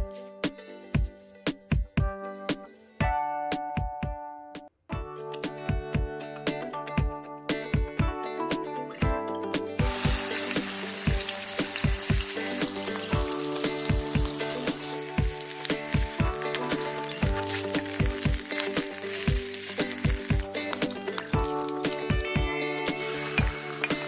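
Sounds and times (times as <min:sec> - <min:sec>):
background music with steady beat: 0:00.0 - 0:24.0
meat sizzling in hot oil: 0:09.8 - 0:24.0.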